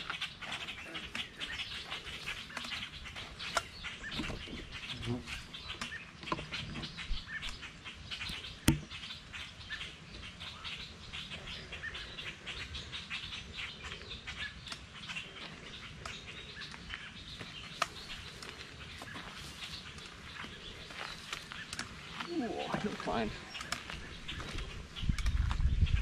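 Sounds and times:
songbirds chirping: 0.0s - 26.0s
footsteps on gravel: 15.2s - 25.7s.

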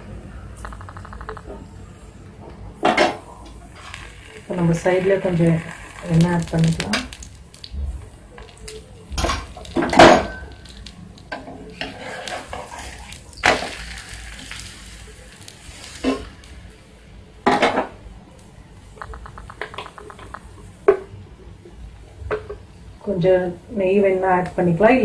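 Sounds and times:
oil sizzling: 2.8s - 21.2s.

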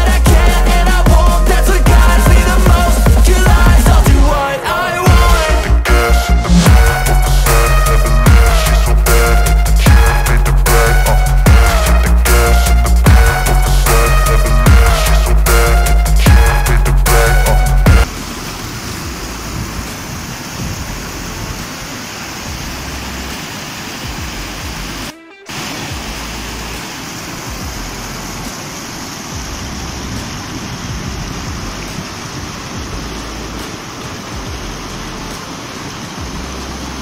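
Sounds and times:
river rapids rushing over boulders: 18.0s - 37.0s.

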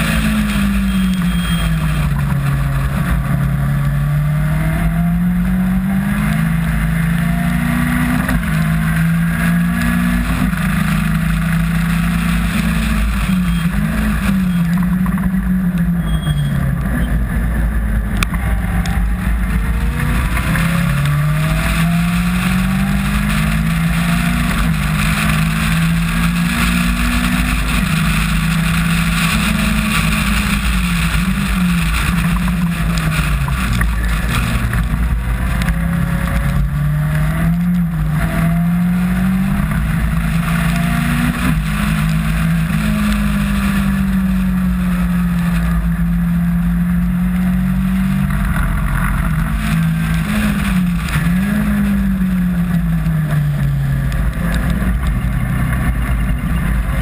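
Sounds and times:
racing car engine revving: 0.0s - 57.0s
wind rumble: 0.0s - 57.0s.

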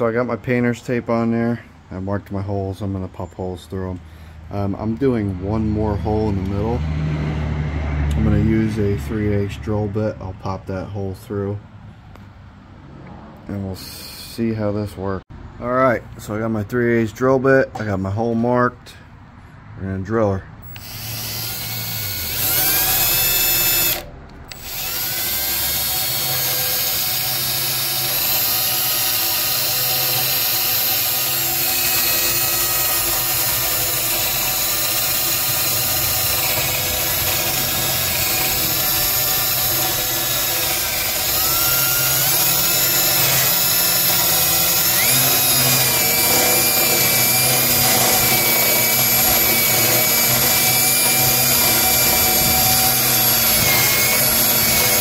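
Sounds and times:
cordless drill boring through steel: 4.8s - 6.8s, 20.6s - 55.0s.

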